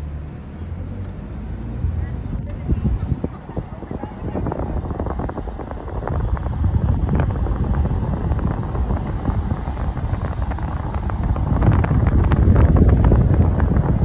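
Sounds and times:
car road rumble: 0.0 - 14.0
wind buffeting microphone: 1.6 - 14.0.

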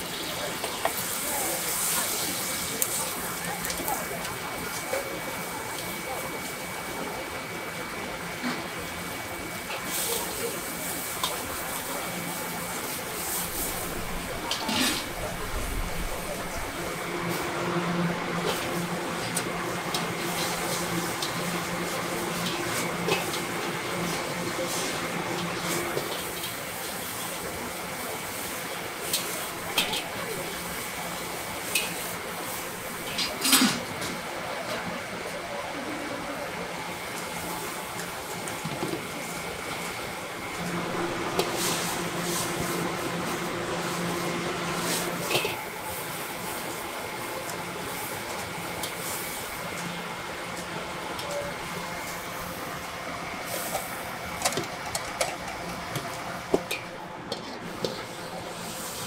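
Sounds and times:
cabbage sizzling in a wok: 0.0 - 4.2, 57.7 - 59.0
gas burner hissing and humming: 0.0 - 59.0
noodles sizzling: 9.3 - 33.6, 39.2 - 54.5
steady low hum: 13.1 - 26.0, 40.2 - 45.8.

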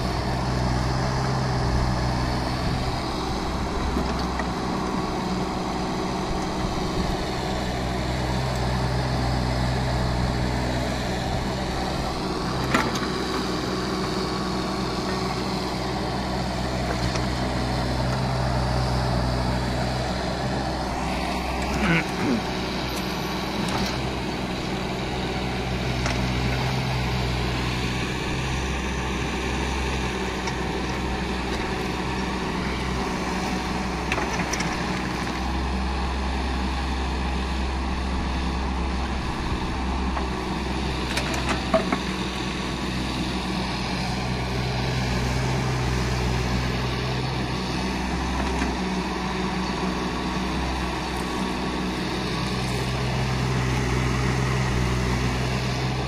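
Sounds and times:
diesel engine running under load: 0.0 - 56.0
excavator bucket digging soil: 10.4 - 27.0, 29.8 - 35.7, 39.9 - 42.3.

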